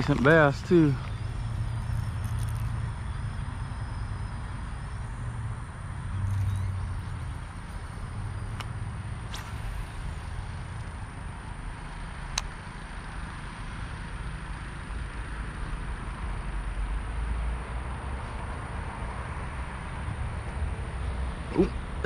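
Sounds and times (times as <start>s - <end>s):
even hiss: 9.2s - 11.3s.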